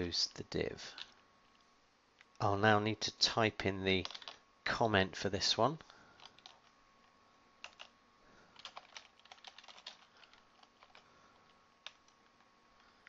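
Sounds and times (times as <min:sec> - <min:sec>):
faint keyboard typing: 0:04.0 - 0:04.4, 0:05.8 - 0:13.0.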